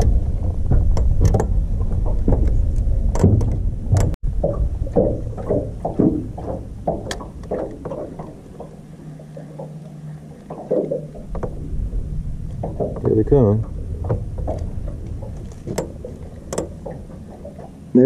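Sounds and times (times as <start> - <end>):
knocks in boat: 0.0 - 8.7, 12.6 - 17.8
faint low hum: 0.0 - 18.0
waves slapping boat hull: 0.0 - 18.0
wind rumbling on microphone: 0.0 - 18.0.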